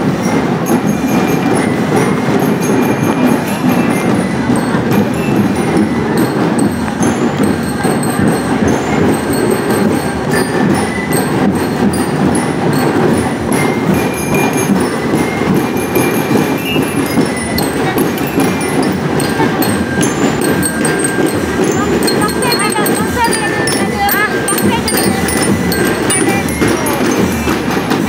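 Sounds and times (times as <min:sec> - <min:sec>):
high bell-lyre notes: 0:00.0 - 0:28.0
marching drum cadence: 0:00.0 - 0:28.0.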